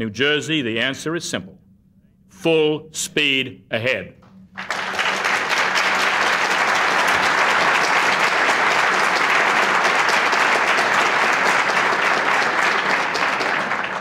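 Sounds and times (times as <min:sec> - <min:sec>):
audience applauding: 0:04.6 - 0:14.0.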